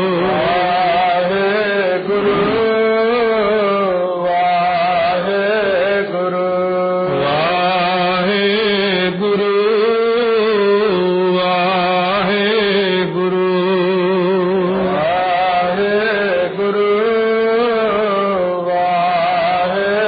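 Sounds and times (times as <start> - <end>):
steady drone: 0.0 - 4.0
person chanting held notes: 0.0 - 20.0.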